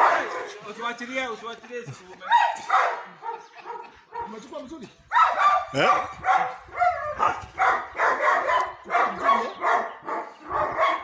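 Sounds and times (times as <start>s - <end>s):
dogs barking: 0.0s - 0.7s, 2.3s - 4.4s, 5.1s - 11.0s.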